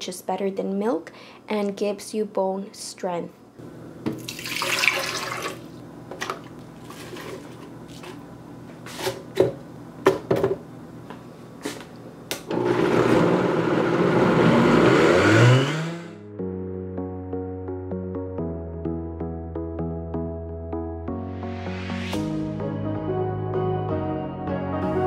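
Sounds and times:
water pouring into blender jar: 4.2s - 5.7s
blender motor running: 12.5s - 16.2s.

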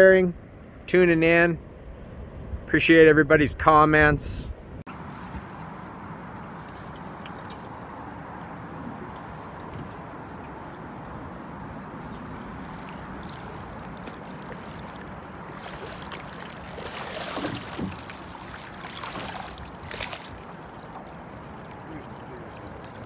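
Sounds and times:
fish splashing: 4.9s - 23.0s
river current rushing: 4.9s - 23.0s.

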